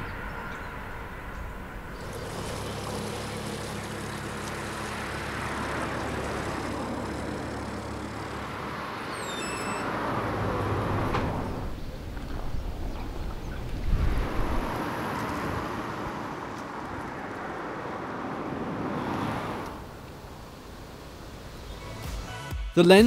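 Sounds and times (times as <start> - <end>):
boat engine humming: 0.0 - 22.1.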